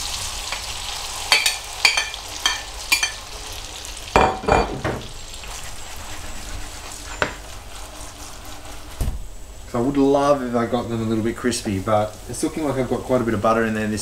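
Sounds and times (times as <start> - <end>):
food sizzling in a pan: 0.0 - 14.0
metal spatula tapping a pan: 1.3 - 3.2
pan scraping on hob: 5.4 - 9.0.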